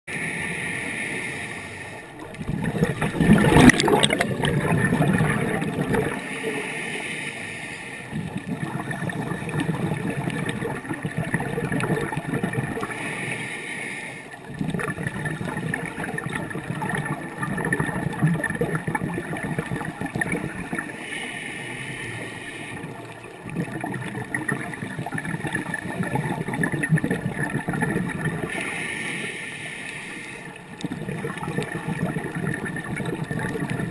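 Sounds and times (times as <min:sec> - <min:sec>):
regulator inhale hiss: 0:00.1 - 0:02.2, 0:06.1 - 0:08.3, 0:12.8 - 0:14.4, 0:20.8 - 0:23.1, 0:28.5 - 0:30.7
exhaust bubbles gurgling: 0:02.1 - 0:06.5, 0:08.1 - 0:13.0, 0:14.4 - 0:21.0, 0:22.7 - 0:28.6, 0:30.6 - 0:33.9.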